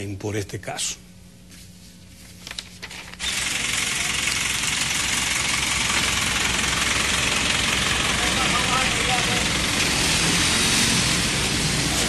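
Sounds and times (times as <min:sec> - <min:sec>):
vehicle engine noise with hiss: 0:03.3 - 0:12.0.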